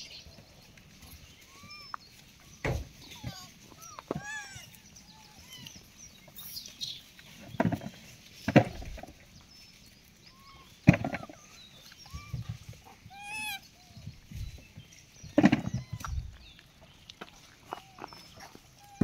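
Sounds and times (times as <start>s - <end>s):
macaque coo calls: 1.3s - 5.9s, 10.3s - 14.1s, 15.5s - 16.4s, 17.6s - 19.0s.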